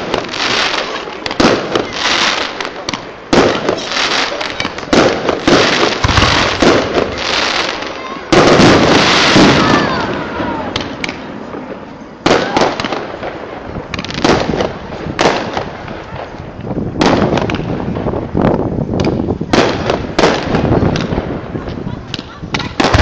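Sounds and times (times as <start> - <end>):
firework crackling: 0.0 - 23.0
firework shells bursting: 1.2 - 9.7.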